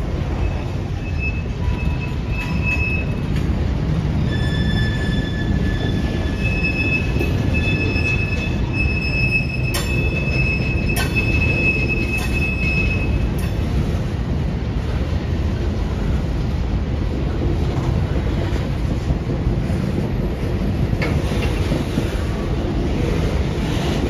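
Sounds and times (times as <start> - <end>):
train rumble: 0.0 - 24.0
train wheels squealing: 0.2 - 14.0.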